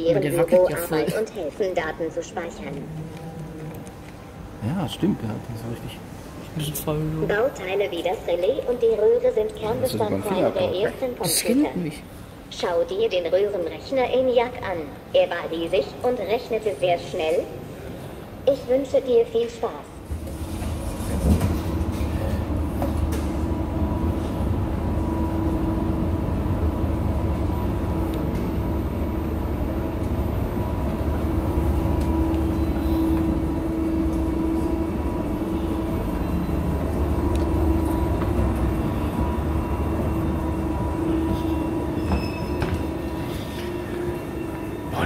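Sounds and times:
escalator machinery drone: 19.6 - 45.0.

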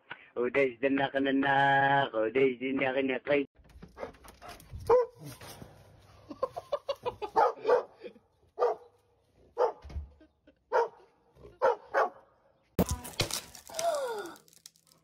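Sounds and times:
dog barking: 4.0 - 5.3, 7.2 - 9.9, 10.7 - 12.4.

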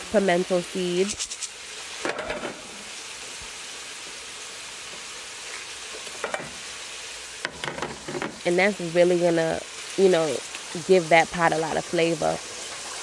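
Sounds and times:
vegetables sizzling in skillet: 0.0 - 13.0
spice berries rattling into pan: 1.0 - 1.6.

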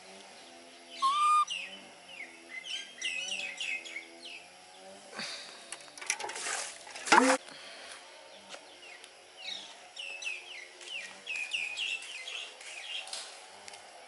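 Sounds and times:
baby monkey squealing: 1.0 - 1.5
monkey high chirps: 1.0 - 1.5.

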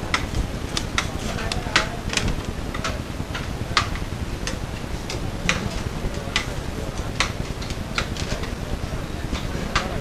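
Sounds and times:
background hum: 0.0 - 10.0.

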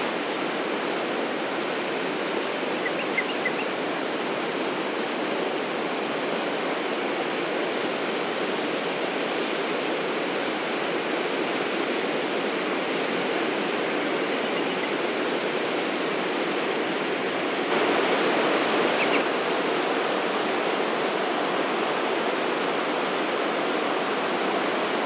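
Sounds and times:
ocean surf washing onto beach: 0.0 - 25.0
faint high chirps: 2.8 - 3.7.

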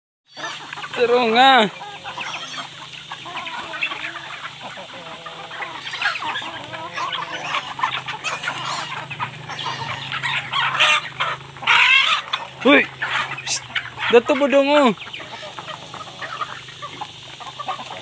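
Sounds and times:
hens and roosters clucking: 0.3 - 18.0.

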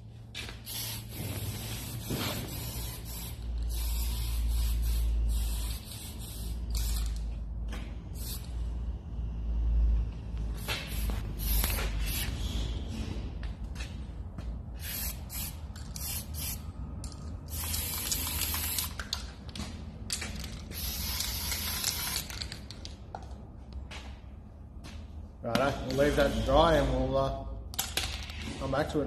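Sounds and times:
spray paint can hissing: 0.4 - 7.3, 8.1 - 8.6, 10.6 - 12.4, 14.8 - 16.6, 17.4 - 19.2, 20.7 - 22.6.

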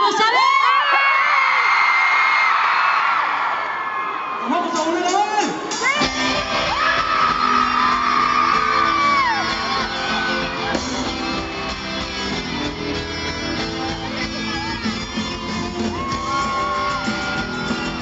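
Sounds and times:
crowd shouting: 5.6 - 18.0
live pop-rock band playing: 5.6 - 18.0.

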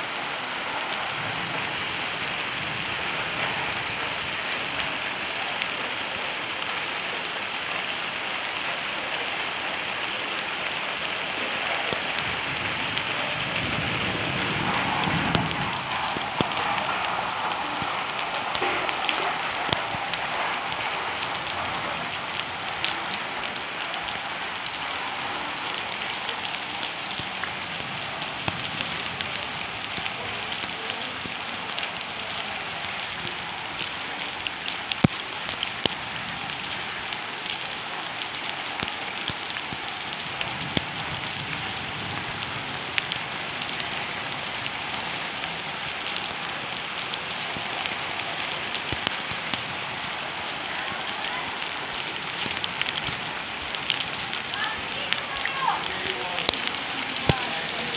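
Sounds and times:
steady rain falling: 0.0 - 57.9
raindrop taps: 14.7 - 37.6, 38.2 - 57.9.

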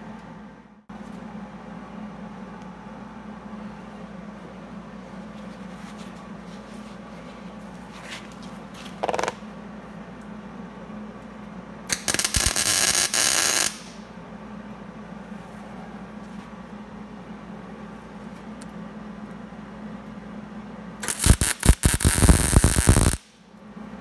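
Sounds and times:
welding arc crackling: 11.9 - 14.0, 21.0 - 23.3.

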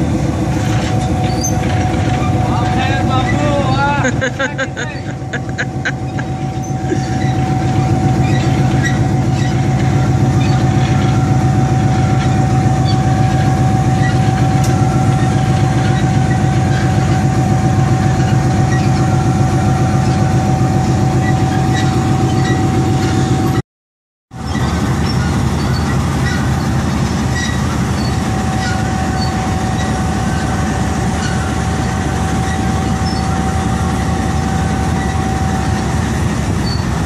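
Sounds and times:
high whine: 0.0 - 23.6
locomotive engine idling: 0.0 - 23.6, 24.4 - 37.0.

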